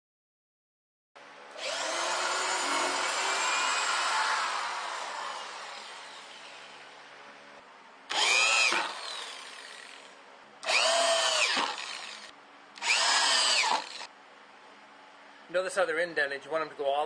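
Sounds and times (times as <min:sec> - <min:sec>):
power drill driving screws into wood: 0:01.6 - 0:06.6, 0:08.1 - 0:10.0, 0:10.6 - 0:14.1.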